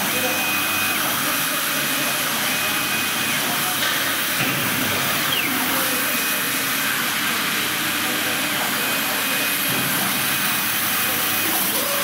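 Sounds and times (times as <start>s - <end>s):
hiss of air and fans: 0.0s - 12.0s
laser head high-pitched whines: 5.1s - 6.6s.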